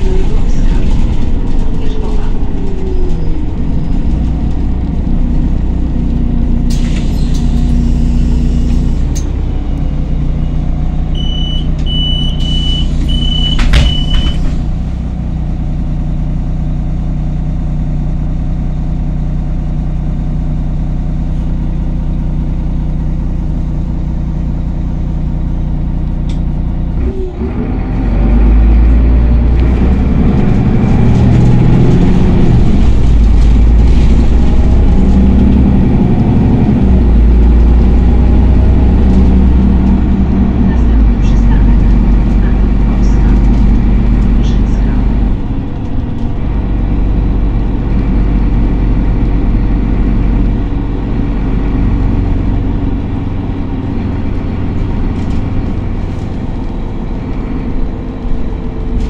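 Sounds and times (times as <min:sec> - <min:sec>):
bus engine running: 0:00.0 - 0:59.0
short high beeps: 0:11.2 - 0:14.4.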